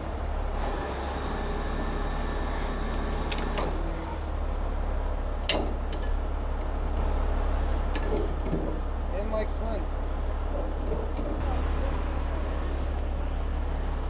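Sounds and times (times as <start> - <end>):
diesel engine low rumble: 0.0 - 14.0.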